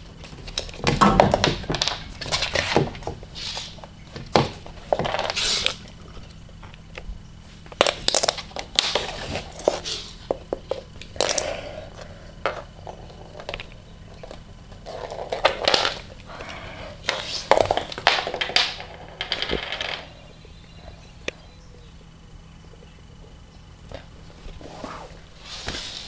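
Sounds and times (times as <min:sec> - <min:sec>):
tape roll clicking on hard floor: 0:07.7 - 0:11.5, 0:12.4 - 0:16.1, 0:17.0 - 0:20.1.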